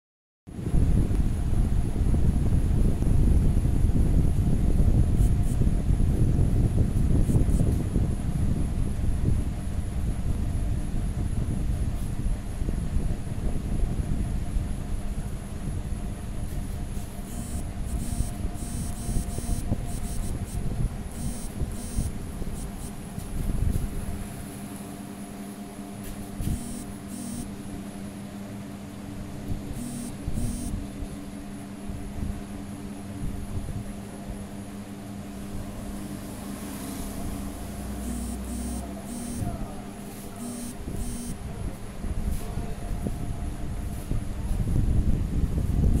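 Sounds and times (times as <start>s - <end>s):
electric motor hum: 0.7s - 10.8s, 15.8s - 28.2s, 29.5s - 31.8s, 34.5s - 41.8s.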